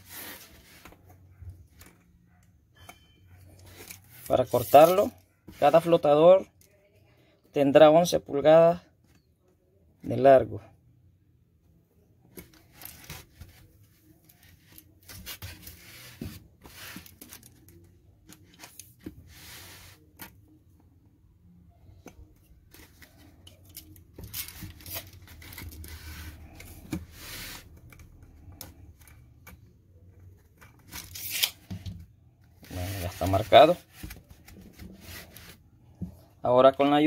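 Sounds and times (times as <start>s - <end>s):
rubbing and scratching on foam: 4.0s - 6.0s, 12.7s - 17.5s, 19.2s - 20.2s, 27.0s - 27.8s, 32.6s - 35.6s.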